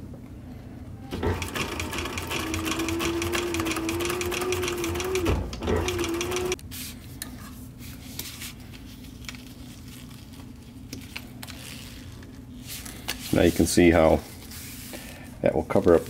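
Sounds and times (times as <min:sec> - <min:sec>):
sewing machine stitching: 0:01.1 - 0:06.6.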